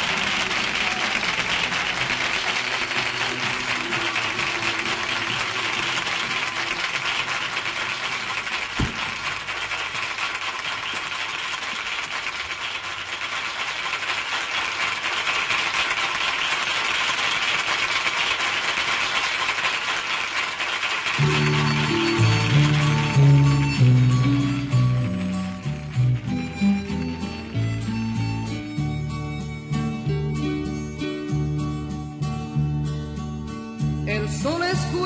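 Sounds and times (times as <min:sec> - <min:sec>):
audience applauding: 0:00.0 - 0:30.1
band holding low notes: 0:21.2 - 0:30.0.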